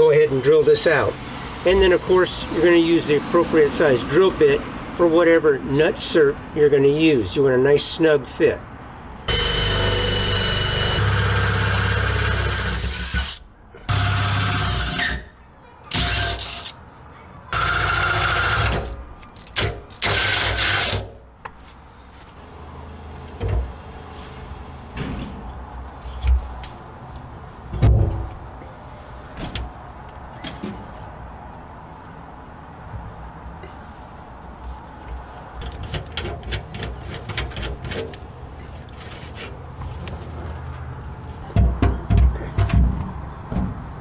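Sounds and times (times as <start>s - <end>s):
cordless drill boring through metal: 9.3s - 15.2s, 17.6s - 18.9s.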